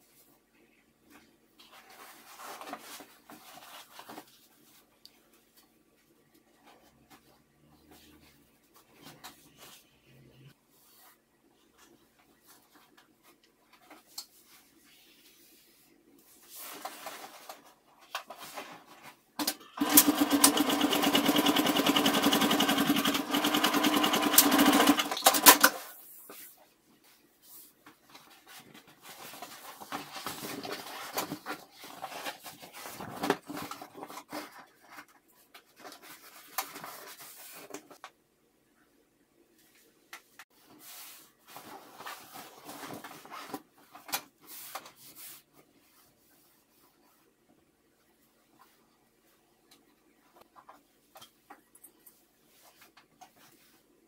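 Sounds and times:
electric sewing machine stitching: 19.4s - 25.7s.

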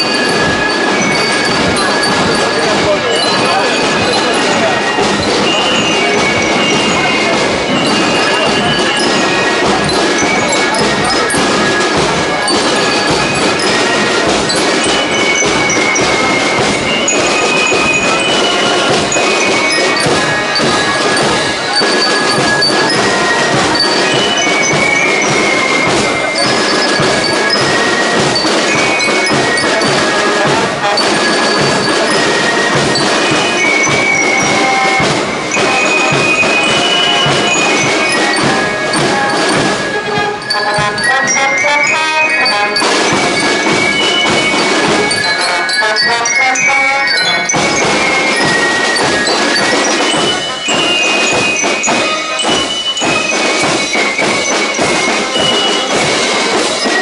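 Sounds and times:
flutes playing high notes: 0.0s - 57.0s
marching drums: 0.0s - 57.0s.

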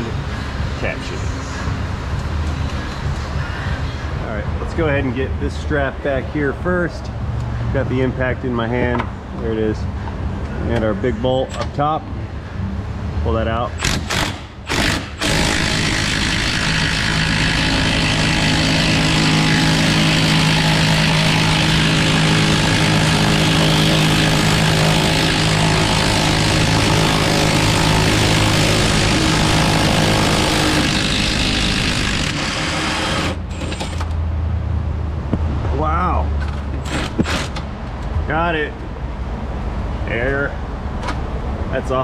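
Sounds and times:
impact wrench hammering: 13.8s - 34.2s.

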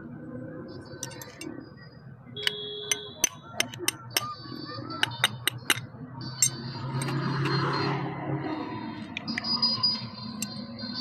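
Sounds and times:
metal tool tapping brake caliper: 1.0s - 1.5s, 2.4s - 4.4s, 5.0s - 7.2s.

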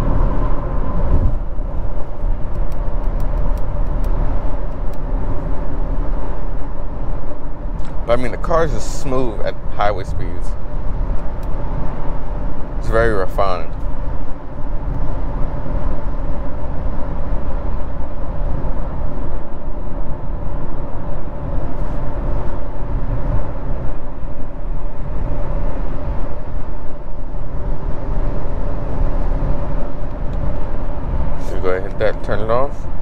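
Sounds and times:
road and wind noise in car: 0.0s - 33.0s.

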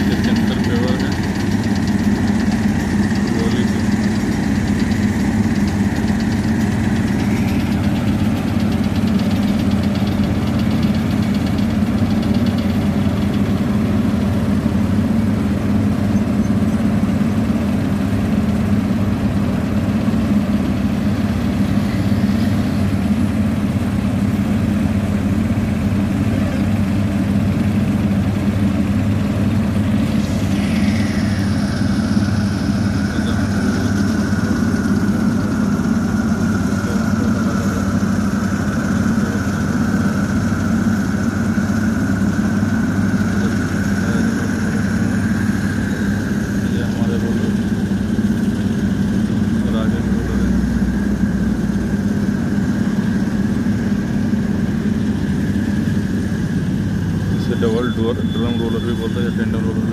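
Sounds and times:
diesel engine running: 0.0s - 59.9s
high whine sliding down in pitch: 29.6s - 59.9s.

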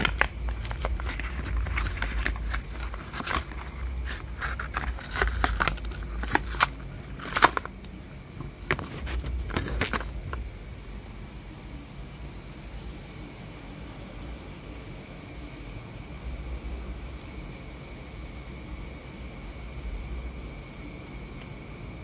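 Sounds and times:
packaging crinkling and rustling: 0.0s - 10.5s
handling rumble: 0.0s - 11.0s.

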